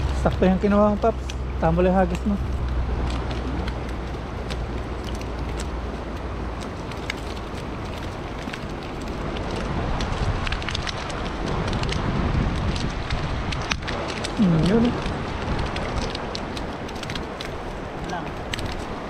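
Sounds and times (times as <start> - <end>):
water pattering and splashing: 0.0 - 19.0.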